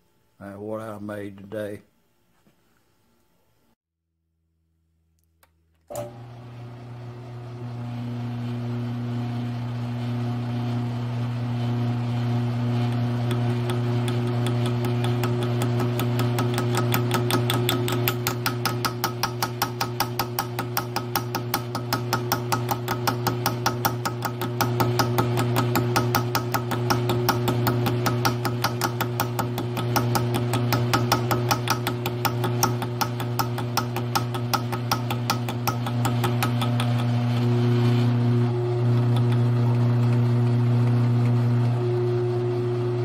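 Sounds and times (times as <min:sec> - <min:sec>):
mill-drill motor hum: 0:05.9 - 0:43.0
drill bit cutting metal: 0:12.0 - 0:40.9.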